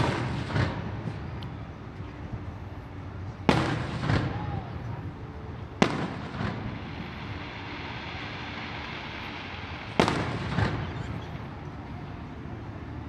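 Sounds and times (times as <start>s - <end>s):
firework bang: 0.0s - 1.3s, 3.5s - 4.8s, 5.8s - 11.6s
dull firework boom: 9.8s - 11.5s.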